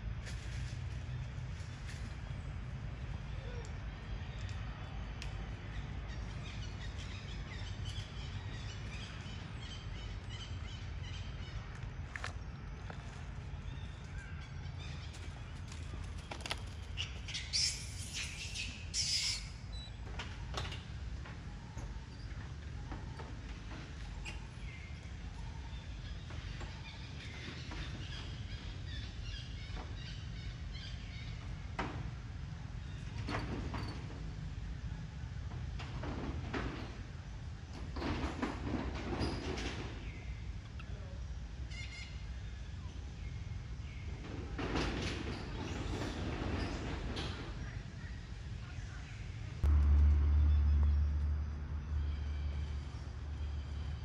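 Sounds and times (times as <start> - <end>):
small birds chirping: 3.1 - 20.1.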